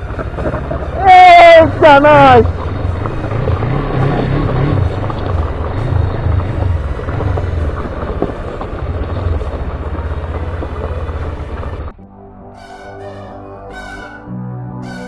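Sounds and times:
tyres on gravel: 0:00.0 - 0:12.0
motorcycle engine throbbing: 0:00.0 - 0:15.0
quiet music: 0:09.3 - 0:15.0.

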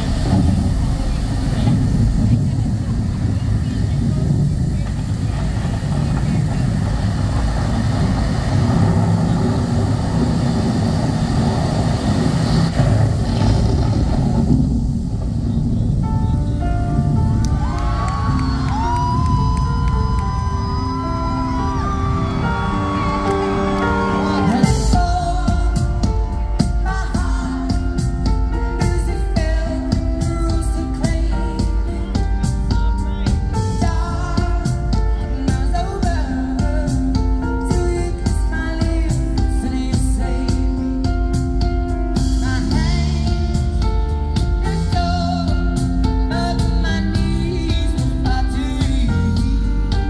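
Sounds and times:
band playing pop: 0:00.0 - 0:50.0
drum beats: 0:00.0 - 0:50.0
thunder rumble over speakers: 0:00.0 - 0:50.0
woman singing into microphone: 0:18.4 - 0:28.1.

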